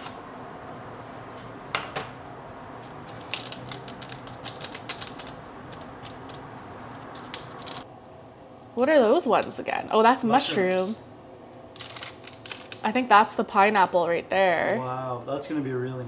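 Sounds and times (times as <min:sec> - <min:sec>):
steady low hum: 0:00.0 - 0:16.0
crackling of dried chili and paper: 0:02.8 - 0:07.8, 0:11.7 - 0:13.1.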